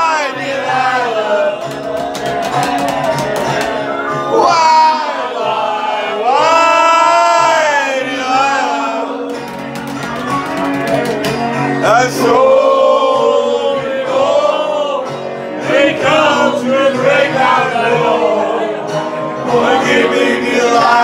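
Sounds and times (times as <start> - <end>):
men singing together: 0.0 - 3.6, 4.3 - 9.5, 11.7 - 21.0
guitar: 0.0 - 21.0.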